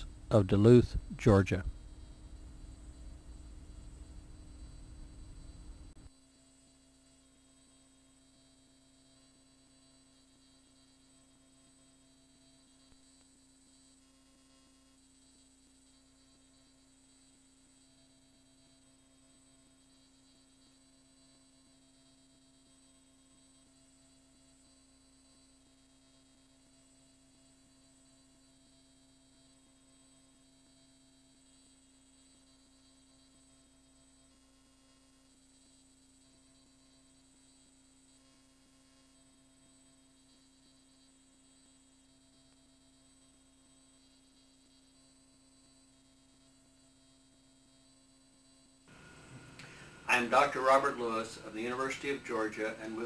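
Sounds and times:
faint low hum: 0.0 - 53.0
light hiss: 48.9 - 53.0.

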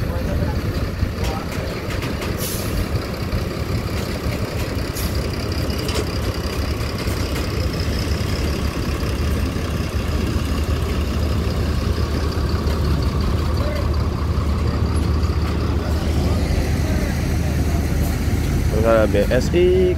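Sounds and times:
diesel bus engine rumbling: 0.0 - 19.9.

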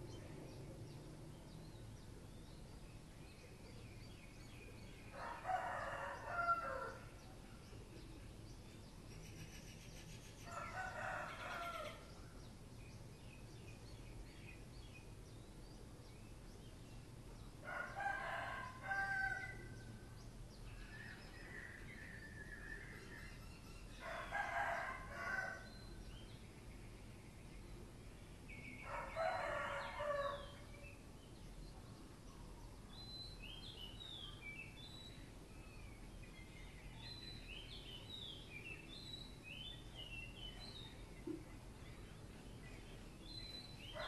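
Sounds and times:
rooster crowing: 5.2 - 7.0, 10.5 - 12.1, 17.7 - 19.7, 24.0 - 25.6, 28.9 - 30.5.

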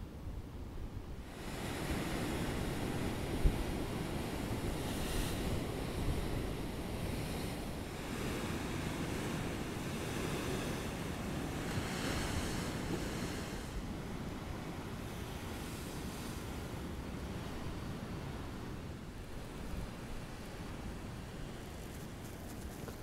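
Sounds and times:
wind buffeting microphone: 0.4 - 23.0
ocean surf breaking over rocks: 1.3 - 21.6.

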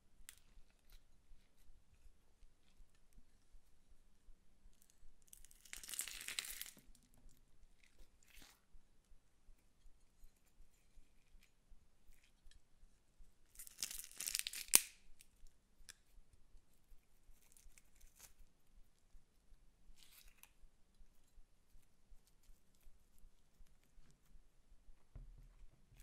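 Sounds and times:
slime crackling and tearing: 5.4 - 6.8, 13.5 - 15.0.

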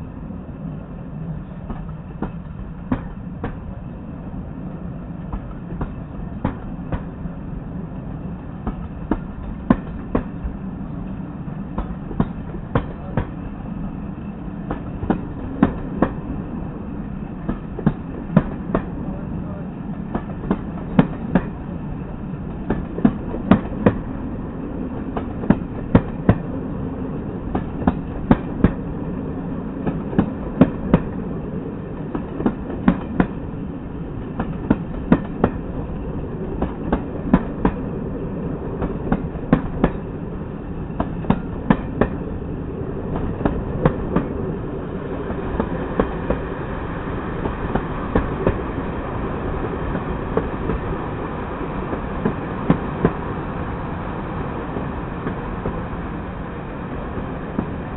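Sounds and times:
train rumble: 0.0 - 57.9.

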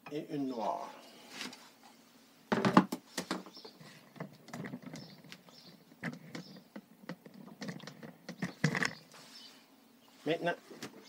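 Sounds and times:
equipment handling knocks and clicks: 2.5 - 3.5.

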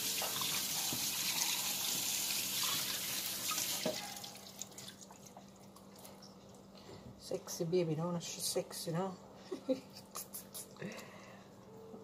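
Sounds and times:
tap water splashing: 0.0 - 1.2, 2.6 - 5.2.

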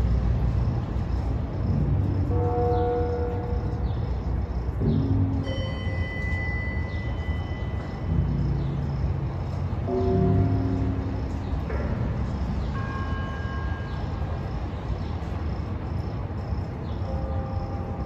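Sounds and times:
distant traffic rumble: 0.0 - 18.0.

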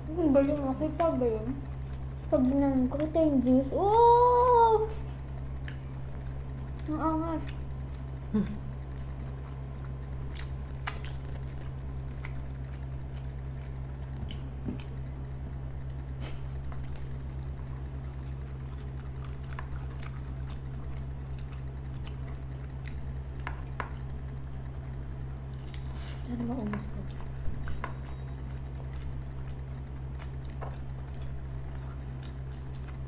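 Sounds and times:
steady low hum: 0.0 - 33.0
chewing and biting: 5.6 - 15.4, 16.1 - 33.0.

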